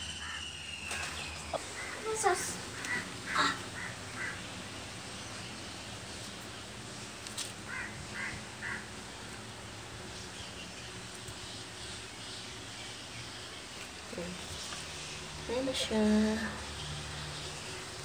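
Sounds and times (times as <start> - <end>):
bird calling: 0.0 - 4.6, 7.7 - 9.0.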